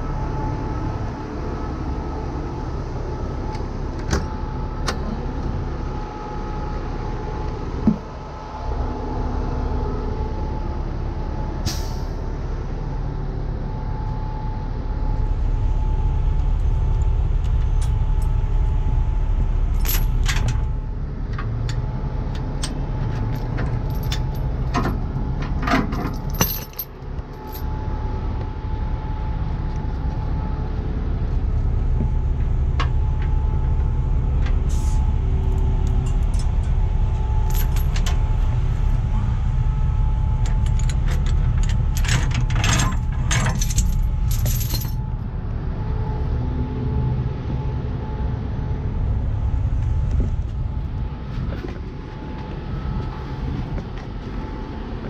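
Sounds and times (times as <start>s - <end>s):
diesel truck engine running: 0.0s - 55.0s
metal chains clinking: 19.8s - 20.6s, 22.6s - 24.4s, 25.8s - 27.7s, 37.4s - 38.0s, 40.5s - 45.0s.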